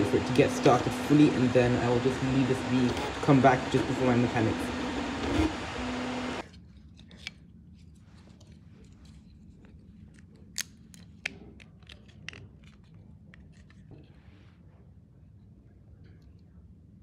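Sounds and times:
printer whirring: 0.0s - 6.4s.

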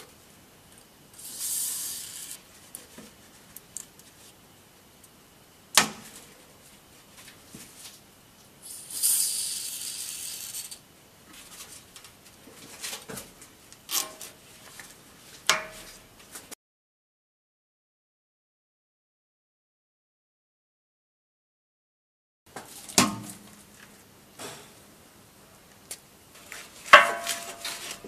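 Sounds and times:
hiss: 1.2s - 2.4s, 8.6s - 10.8s.

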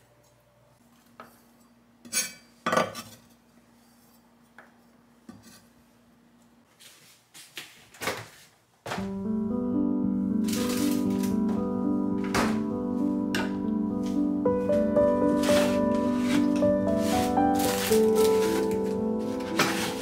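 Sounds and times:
background music: 9.0s - 20.0s.

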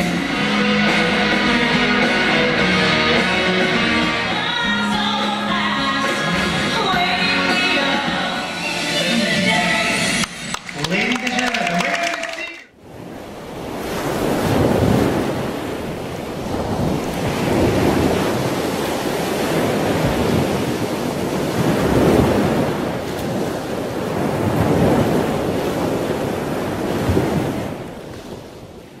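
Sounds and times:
sea rushing: 0.0s - 29.0s
wind on ship deck: 12.7s - 29.0s.

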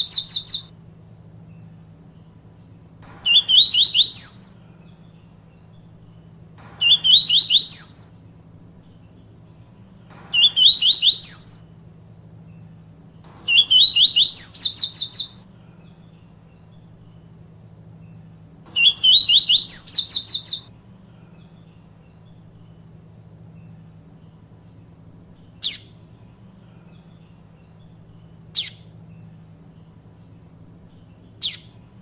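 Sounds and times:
bird singing whistled notes: 0.0s - 8.2s, 8.8s - 31.8s.

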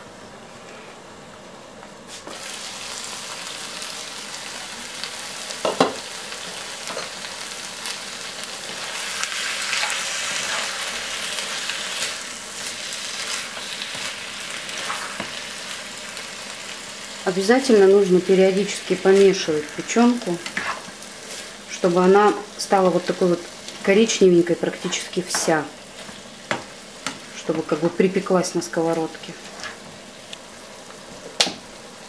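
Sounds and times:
liver sizzling in a frying pan: 2.1s - 32.0s
spatula scraping a pan: 19.3s - 21.6s.

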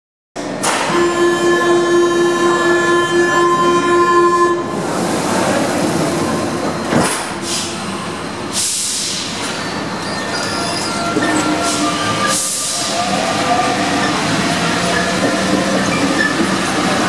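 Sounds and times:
train car noise: 0.4s - 17.0s
train door warning buzzer: 0.7s - 4.8s.

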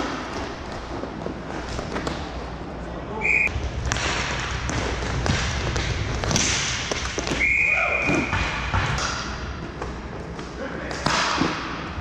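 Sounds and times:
skate wheels rolling: 0.0s - 3.0s
players calling: 3.2s - 3.5s
sticks and puck clacking: 3.8s - 7.4s, 8.0s - 11.9s.

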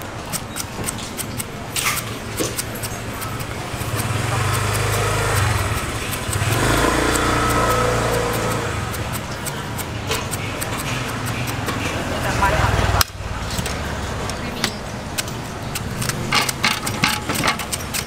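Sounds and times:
vehicle engine humming: 0.0s - 18.0s
peeler blade ticking on fruit skin: 0.3s - 11.8s, 17.6s - 18.0s.

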